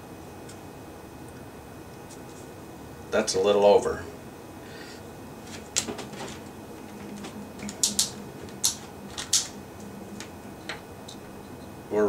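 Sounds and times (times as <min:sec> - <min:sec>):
small parts clicking and tapping: 0:05.5 - 0:09.6.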